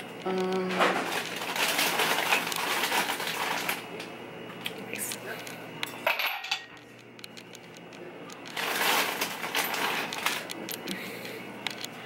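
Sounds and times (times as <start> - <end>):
ice cubes clattering into glass: 8.5 - 10.4.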